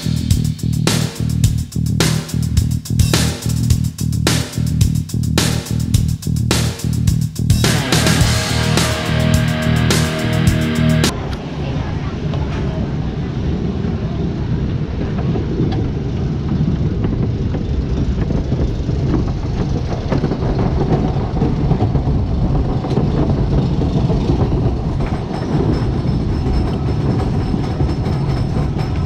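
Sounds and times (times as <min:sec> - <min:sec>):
roller coaster train rumbling: 0:00.0 - 0:29.0
track clicks and clacks: 0:15.2 - 0:29.0.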